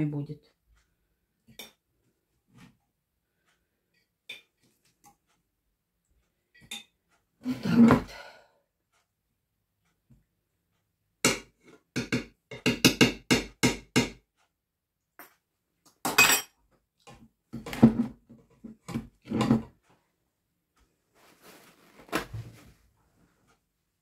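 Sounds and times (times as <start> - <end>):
metal spoon knocking in pot: 11.3 - 14.2.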